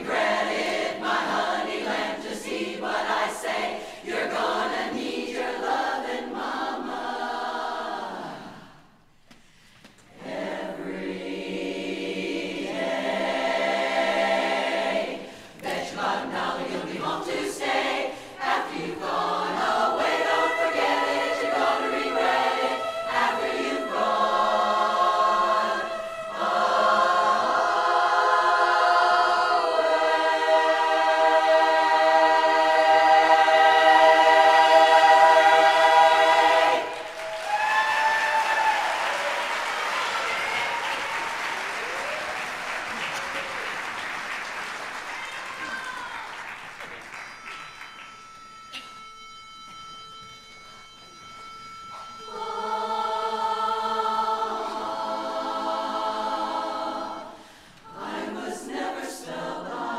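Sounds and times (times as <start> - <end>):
women's chorus singing a cappella: 0.0 - 9.0, 10.1 - 37.6, 52.2 - 59.9.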